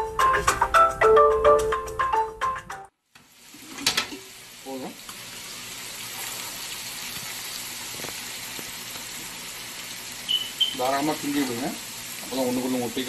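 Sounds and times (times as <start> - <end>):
deep-frying sizzle in hot oil: 3.1 - 13.0.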